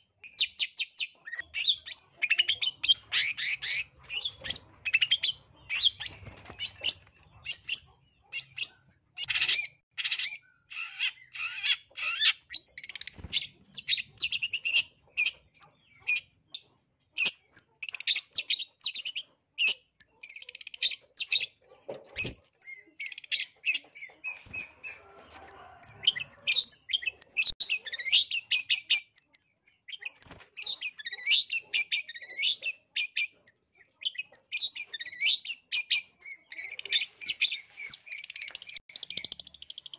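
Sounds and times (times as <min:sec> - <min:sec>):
bird singing harsh chattering notes: 0:00.2 - 0:16.3, 0:25.8 - 0:39.9.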